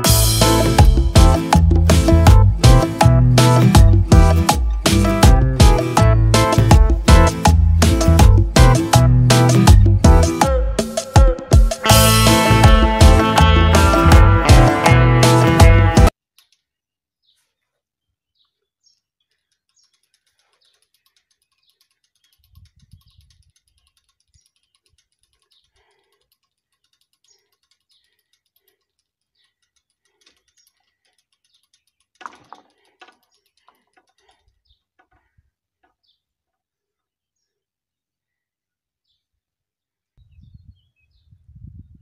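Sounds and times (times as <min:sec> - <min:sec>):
level crossing barriers clicking: 0:19.5 - 0:35.2.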